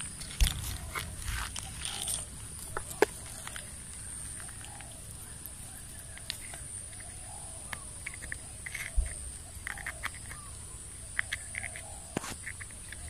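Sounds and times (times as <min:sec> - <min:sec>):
chirping animal calls: 0:00.0 - 0:13.0.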